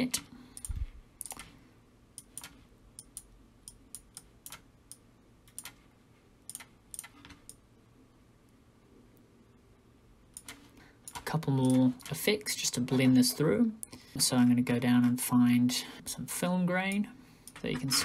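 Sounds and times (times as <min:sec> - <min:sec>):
mouse and keyboard clicking: 0:00.6 - 0:01.5, 0:02.2 - 0:05.8, 0:06.5 - 0:07.6, 0:10.4 - 0:12.2.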